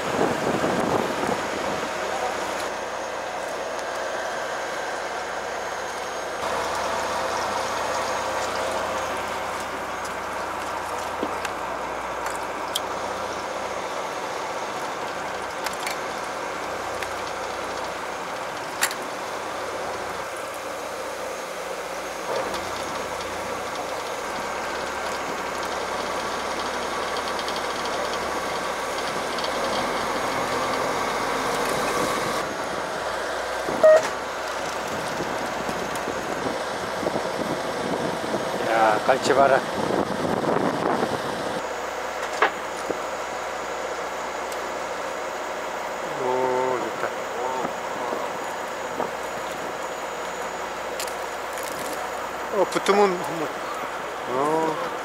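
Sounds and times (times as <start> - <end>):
boat engine humming: 0.0 - 55.0.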